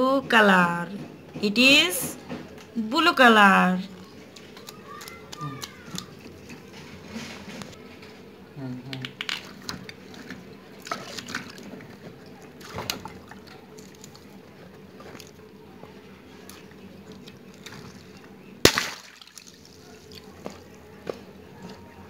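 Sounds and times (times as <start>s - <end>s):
wet rubber squeezing: 4.0s - 7.7s
water splashing: 9.4s - 15.4s, 16.4s - 20.3s
water balloon popping: 18.6s - 19.8s.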